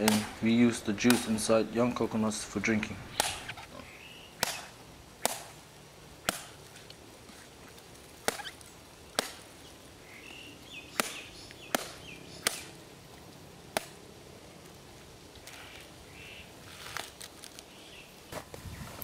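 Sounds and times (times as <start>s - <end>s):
blade chopping coconut: 4.4s - 5.5s.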